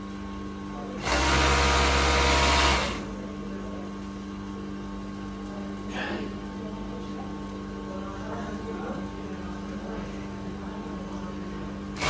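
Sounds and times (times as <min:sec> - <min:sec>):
sewing machine running: 0:01.0 - 0:03.1.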